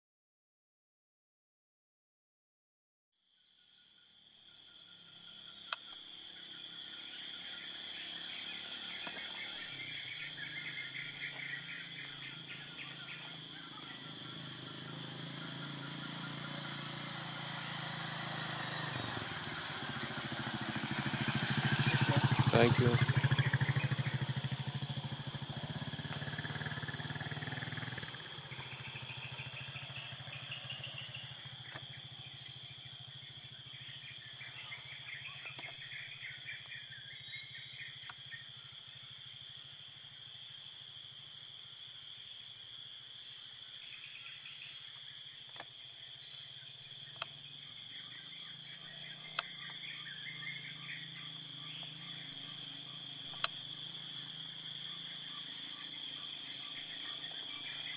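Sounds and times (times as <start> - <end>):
insects droning: 3.2 - 57.9
birds chirping: 4.9 - 41.8, 43.7 - 57.9
low engine hum: 6.9 - 41.4, 44.4 - 57.9
sharp clicks: 53.3 - 53.6.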